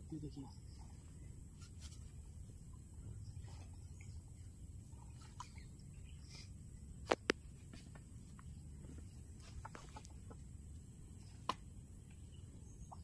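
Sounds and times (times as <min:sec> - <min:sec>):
faint bird chirps: 0:00.0 - 0:06.9, 0:11.1 - 0:13.0
low outdoor hush: 0:00.0 - 0:13.0
chicken clucking: 0:09.4 - 0:10.4.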